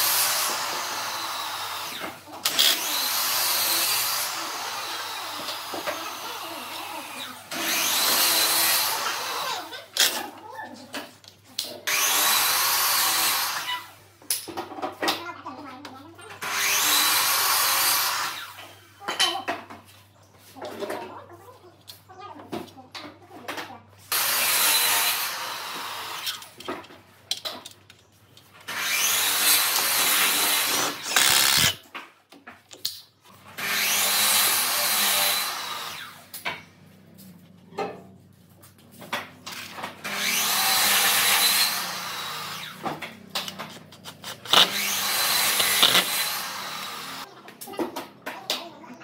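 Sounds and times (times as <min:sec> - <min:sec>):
cordless drill driving screws: 0:00.0 - 0:06.2, 0:07.3 - 0:10.1, 0:28.7 - 0:31.8, 0:44.2 - 0:47.2.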